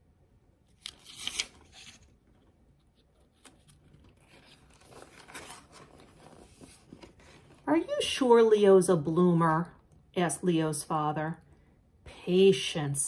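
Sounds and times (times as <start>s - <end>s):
page turning: 0.7s - 7.6s
paper rustling: 0.7s - 7.7s.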